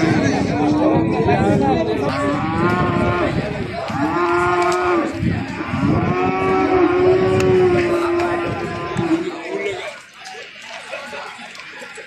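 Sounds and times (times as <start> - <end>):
cattle mooing: 2.1 - 9.4.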